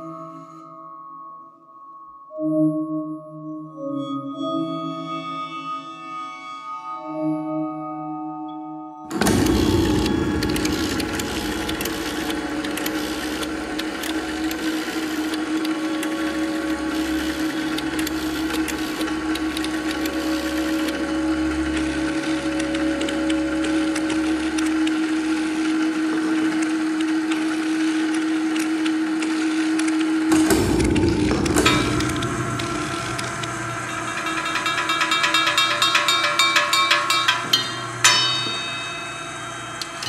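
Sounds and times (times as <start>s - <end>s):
low throbbing pulse: 9.1s - 15.6s, 30.3s - 40.0s
steady drone tone: 9.1s - 26.8s, 30.0s - 40.0s
mechanical crank and gear noise: 9.1s - 40.0s.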